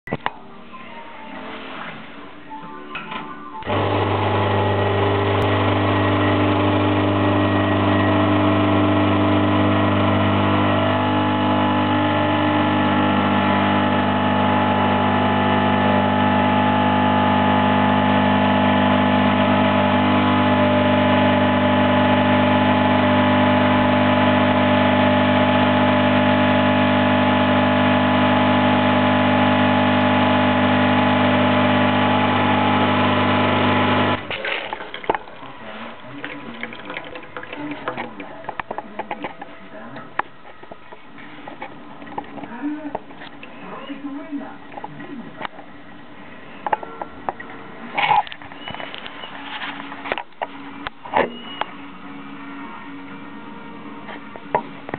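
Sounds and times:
espresso machine pump humming: 0:03.6 - 0:34.3, 0:35.1 - 0:39.6.

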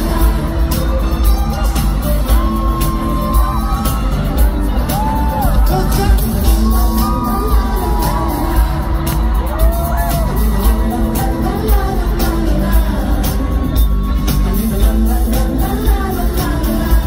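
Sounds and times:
heavy bass beat: 0:00.0 - 0:17.0
person singing: 0:00.0 - 0:17.0.

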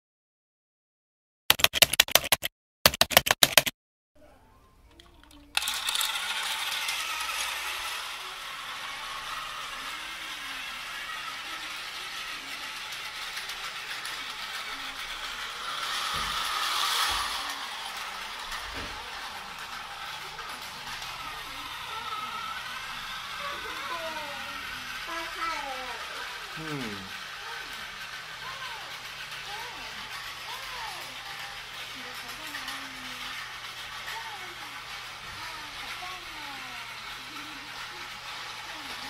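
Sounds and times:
rapid clicking: 0:01.5 - 0:03.7
toy train whirring and rattling: 0:04.8 - 0:39.0.

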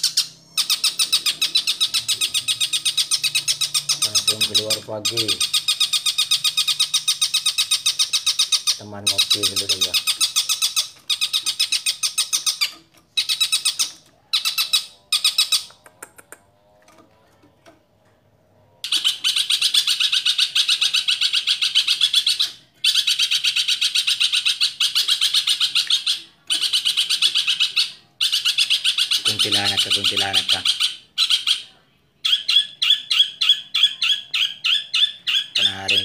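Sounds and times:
shrike chattering: 0:00.0 - 0:16.4.

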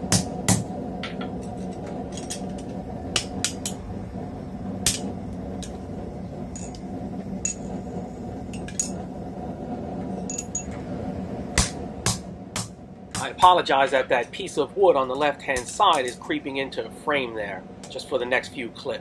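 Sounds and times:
low background hum: 0:00.0 - 0:19.0.

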